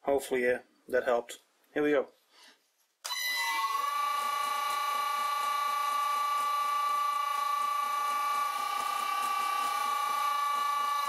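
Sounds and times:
drill boring into metal: 3.1s - 11.0s
electric motor high-pitched whine: 3.1s - 11.0s.

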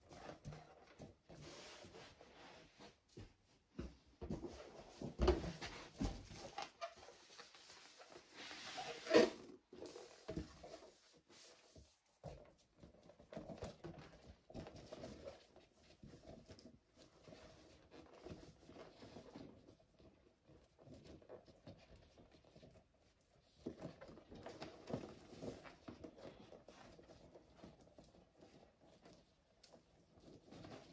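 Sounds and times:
balloons rubbing and squeaking: 6.7s - 10.3s.

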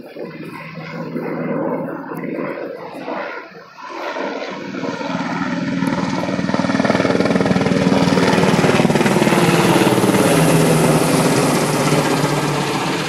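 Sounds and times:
helicopter rotor chop: 0.0s - 13.0s
turbine engine whine: 0.0s - 13.0s.

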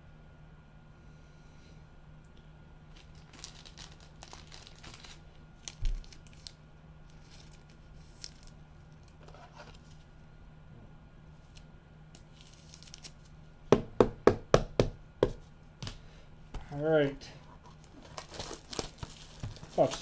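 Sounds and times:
plastic packaging crinkling: 2.9s - 9.9s, 12.2s - 13.4s, 17.6s - 20.0s.

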